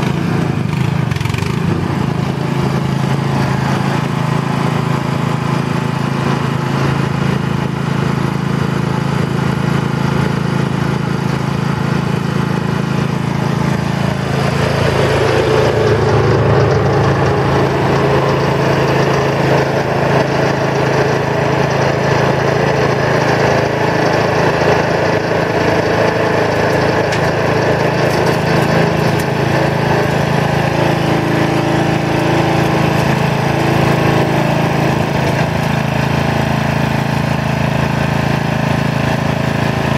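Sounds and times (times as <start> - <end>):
excavator diesel engine digging: 0.0 - 39.9
small petrol engine idling: 0.0 - 39.9.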